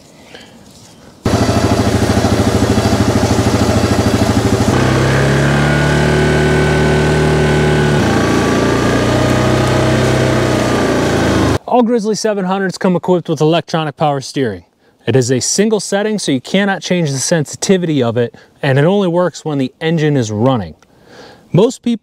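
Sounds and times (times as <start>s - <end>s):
atv engine running under load: 1.3s - 11.6s.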